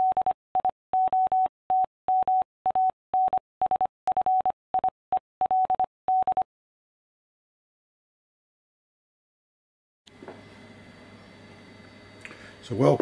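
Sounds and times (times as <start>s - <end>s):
morse code beeps: 0.0s - 6.4s.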